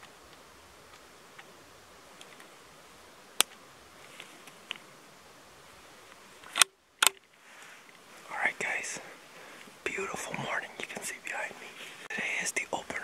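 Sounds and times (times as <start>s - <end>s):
quiet outdoor hiss: 0.0s - 13.0s
rifle clicking on shooting sticks: 3.4s - 3.6s, 6.4s - 7.3s
rifle handling clatter: 6.4s - 7.3s.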